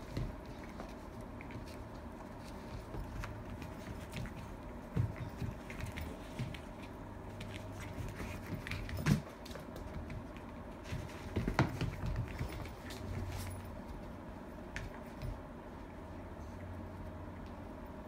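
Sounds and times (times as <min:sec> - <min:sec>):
dog paws pattering on rug: 0:00.0 - 0:18.0.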